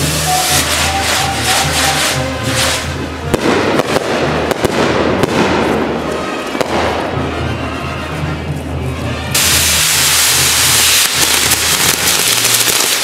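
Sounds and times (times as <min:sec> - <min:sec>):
fireworks bangs and crackling: 0:00.0 - 0:07.5, 0:09.3 - 0:13.0
music with low bass: 0:00.0 - 0:12.8.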